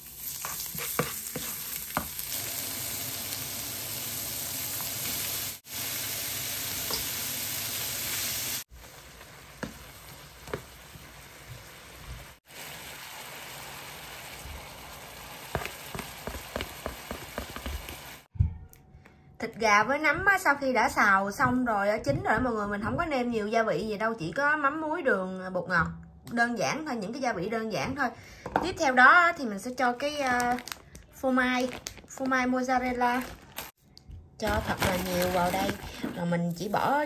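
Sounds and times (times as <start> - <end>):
food sizzling in a pan: 0.0 - 18.3.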